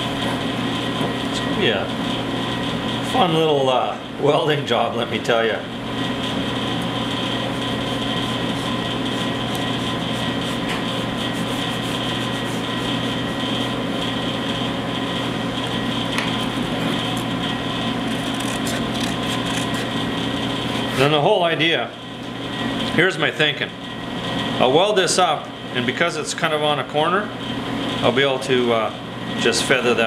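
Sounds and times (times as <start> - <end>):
steady machine hum: 0.0 - 30.0
pencil scratching on paper: 8.2 - 13.3
tin snips cutting paper: 18.1 - 19.9.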